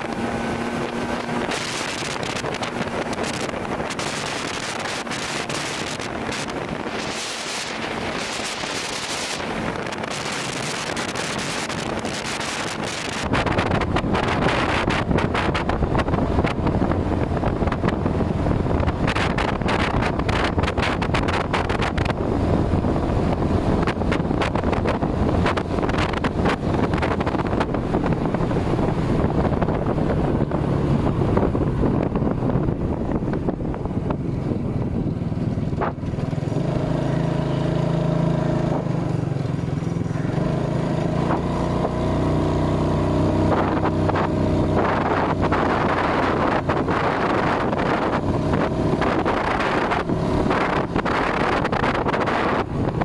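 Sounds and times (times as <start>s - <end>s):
motorcycle engine hum: 0.0s - 53.0s
wind rushing over microphone: 0.0s - 53.0s.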